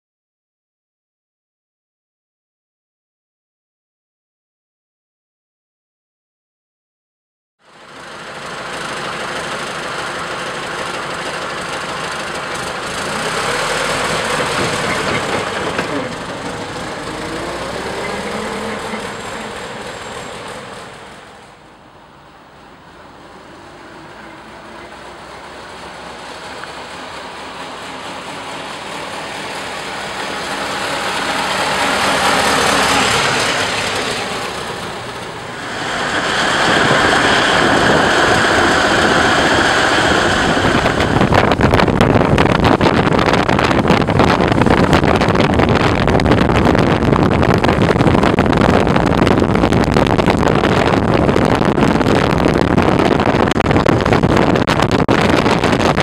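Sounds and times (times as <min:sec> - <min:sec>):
car engine running: 0:07.6 - 0:56.0
wind buffeting microphone: 0:29.1 - 0:56.0.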